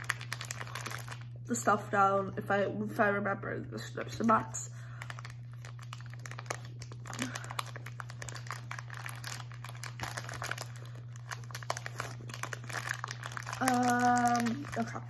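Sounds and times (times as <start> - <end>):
plastic snack bags crinkling: 0.0 - 1.7, 4.8 - 15.0
low electrical hum: 0.0 - 15.0.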